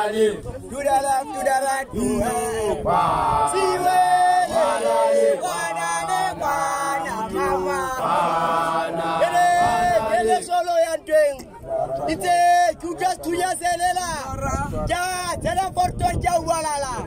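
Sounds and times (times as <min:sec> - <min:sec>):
men's voices chanting: 0:00.0 - 0:11.0.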